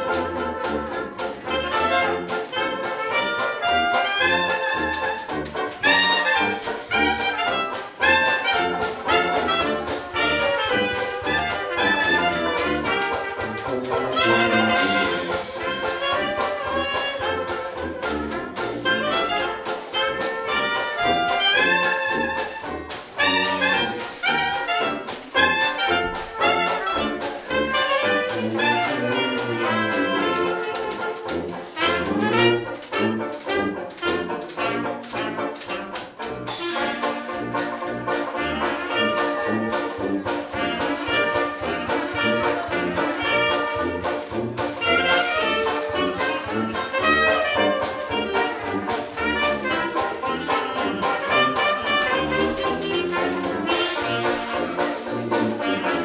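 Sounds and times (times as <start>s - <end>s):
banjo: 0.0s - 56.0s
clarinet: 0.0s - 56.0s
trumpet: 0.0s - 56.0s
sousaphone bass: 5.9s - 17.8s.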